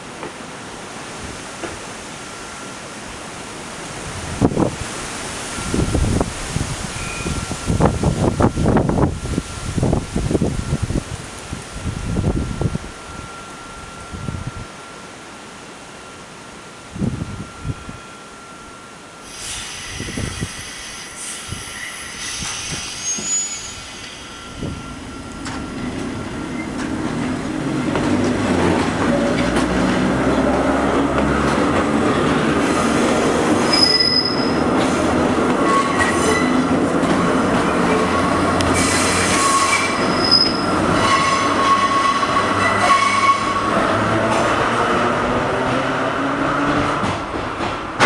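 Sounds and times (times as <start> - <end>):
wheels squealing on rails: 4.6 - 10.9, 19.2 - 47.7
rail joint clatter: 22.2 - 32.5.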